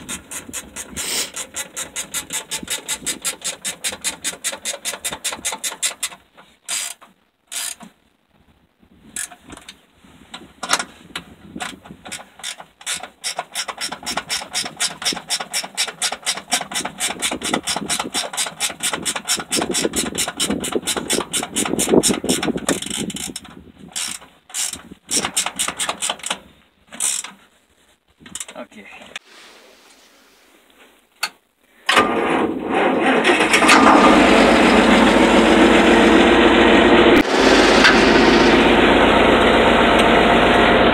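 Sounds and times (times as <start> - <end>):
ratchet wrench clicking: 0.0 - 7.9, 11.6 - 23.4, 24.0 - 26.4, 27.0 - 27.3.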